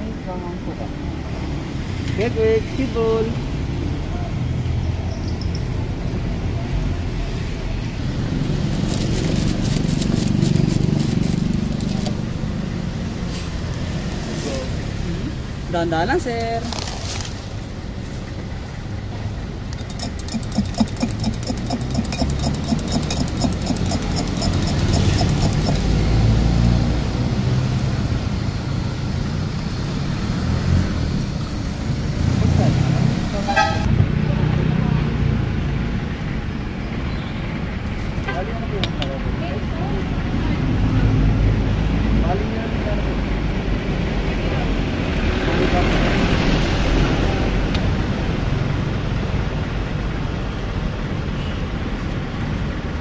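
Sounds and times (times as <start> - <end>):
low traffic rumble: 0.0 - 53.0
rapid high ticking: 19.7 - 26.1.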